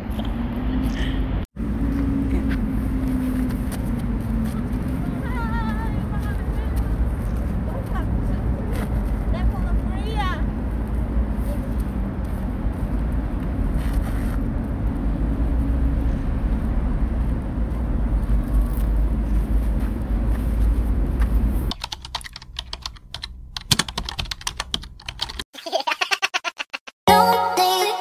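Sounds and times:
low city rumble: 0.0 - 25.4
computer keyboard typing: 21.7 - 25.4.

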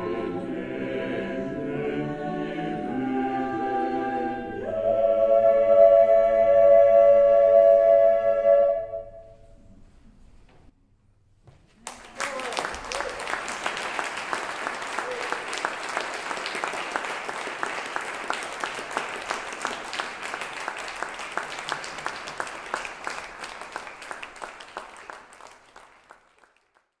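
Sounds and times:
audience applauding: 11.8 - 27.0.

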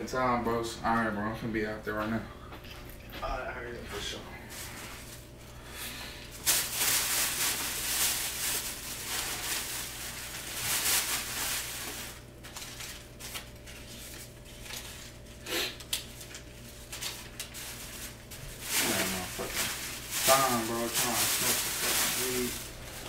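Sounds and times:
bag rustling: 17.6 - 23.0.

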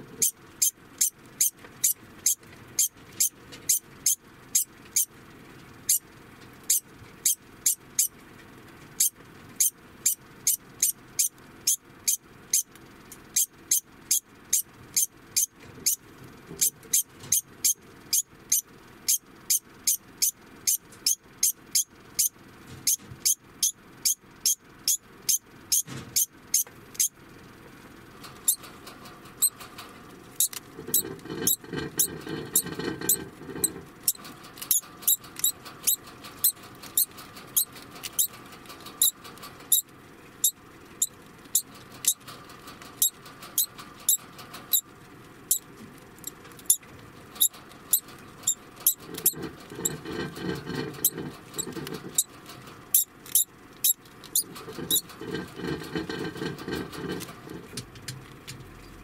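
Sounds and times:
rodent high-pitched alarm calls: 0.2 - 5.1, 5.8 - 6.1, 6.7 - 8.2, 9.0 - 12.7, 13.3 - 16.0, 16.6 - 27.2, 39.0 - 42.2, 43.0 - 44.8, 46.2 - 52.3, 52.9 - 56.5.

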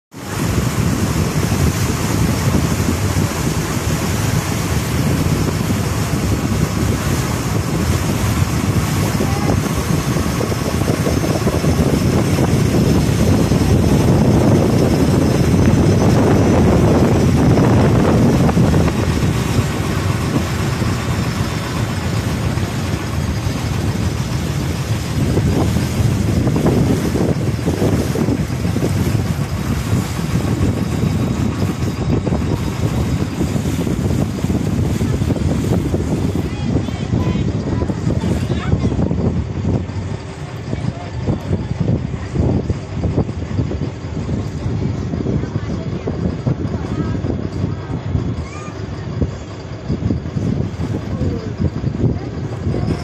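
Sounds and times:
water rushing past boat: 0.0 - 53.0
wind buffeting microphone: 0.1 - 53.0.

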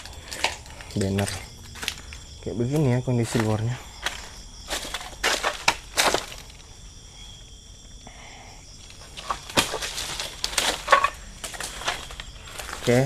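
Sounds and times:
footsteps crunching through leaves: 3.3 - 6.6, 9.1 - 13.0.

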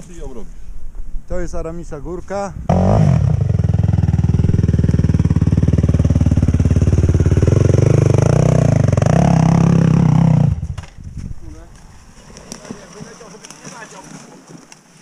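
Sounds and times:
quad bike engine revving: 2.7 - 10.8.

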